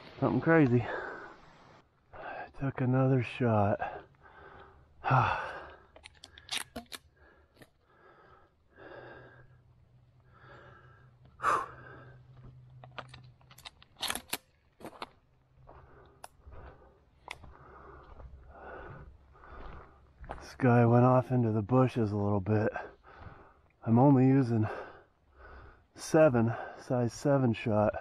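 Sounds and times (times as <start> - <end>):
heavy breathing: 0.8 - 2.6, 3.8 - 13.1, 15.7 - 20.4, 22.7 - 23.8, 24.5 - 26.9
footsteps on gravel: 12.2 - 20.8.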